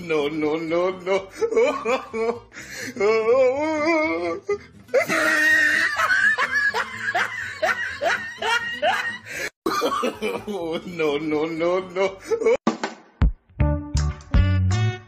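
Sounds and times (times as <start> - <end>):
music: 0.1 - 9.5, 11.2 - 15.0
laughter: 1.3 - 2.4, 4.9 - 12.6.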